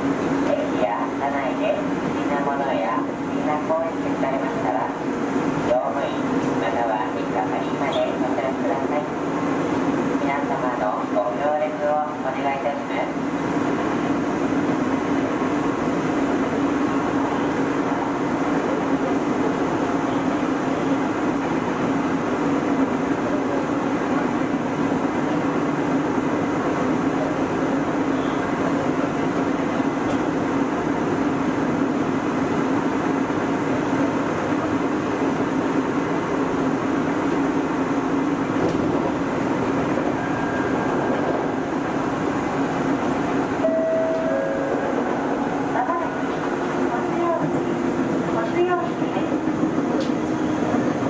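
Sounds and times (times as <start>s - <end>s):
train wheels rumbling: 13.2s - 51.0s.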